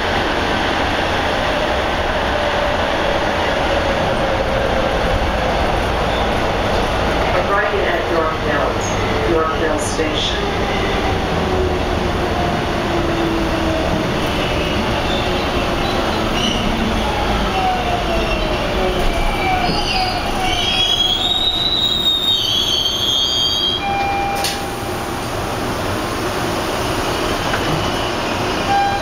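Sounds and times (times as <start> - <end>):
subway wheels rumbling on rail: 0.0 - 29.0
high-pitched wheel squeal: 19.4 - 24.3.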